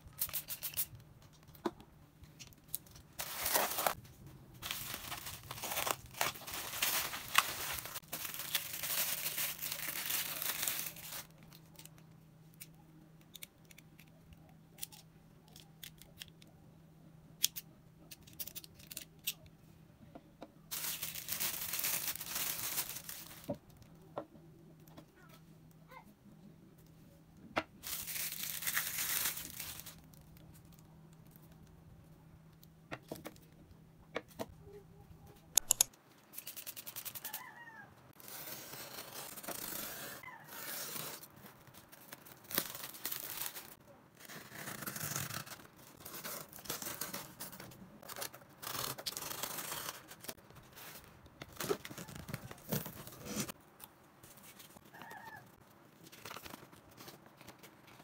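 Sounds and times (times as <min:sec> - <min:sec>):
packing tape peeling and tearing: 0:00.1 - 0:00.9, 0:03.2 - 0:04.0, 0:04.6 - 0:12.0, 0:27.8 - 0:30.0, 0:38.2 - 0:50.4
plastic wrapper crinkling: 0:02.4 - 0:04.0, 0:04.6 - 0:12.0, 0:20.7 - 0:23.9, 0:27.8 - 0:31.6, 0:41.4 - 0:43.8
packaging rustling: 0:02.8 - 0:04.0, 0:04.6 - 0:12.0, 0:20.7 - 0:23.6, 0:27.8 - 0:30.2.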